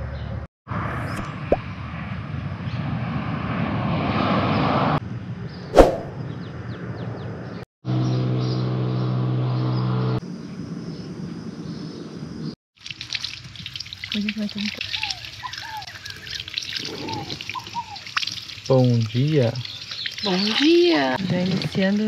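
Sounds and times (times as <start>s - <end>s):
vehicles passing on busy road: 0.0s - 12.6s
vehicle whoosh: 5.7s - 6.2s.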